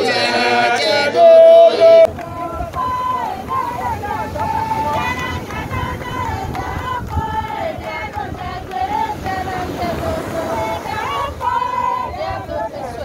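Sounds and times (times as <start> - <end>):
high voice singing a chant: 0.0 - 8.0.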